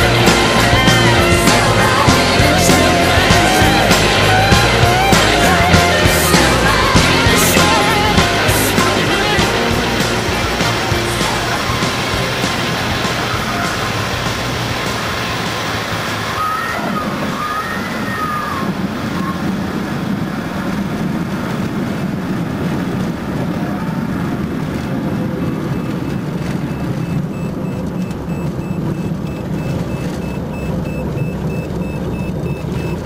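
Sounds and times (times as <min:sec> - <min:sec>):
propeller plane engine running: 0:00.0 - 0:33.0
faint high beeps: 0:25.6 - 0:33.0.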